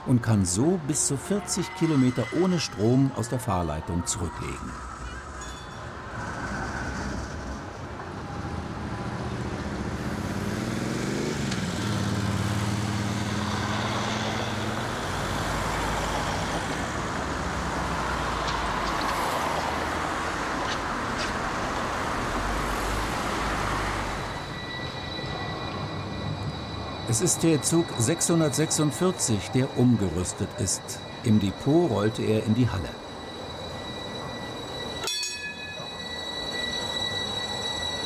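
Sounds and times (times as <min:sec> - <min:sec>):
cars passing: 0:05.8 - 0:35.0
vehicle engine accelerating: 0:08.3 - 0:16.2.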